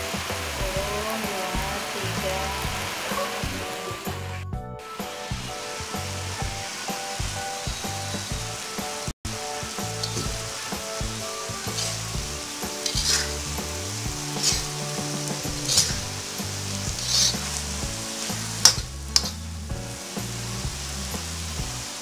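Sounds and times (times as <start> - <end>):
stir-fry sizzling in a wok: 0.0 - 22.0
metal spatula scraping: 9.7 - 19.5
spatula clanking against wok: 9.8 - 19.4.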